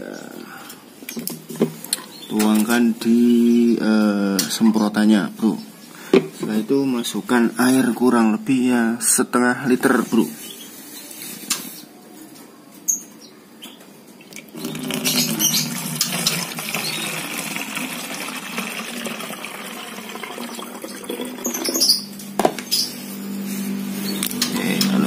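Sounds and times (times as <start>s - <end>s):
water splashing into bottle: 14.4s - 21.9s.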